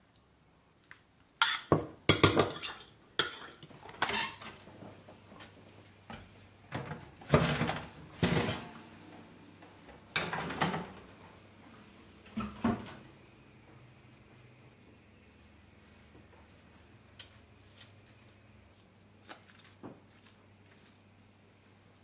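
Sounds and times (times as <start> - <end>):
metal kitchenware clattering: 1.4 - 4.6.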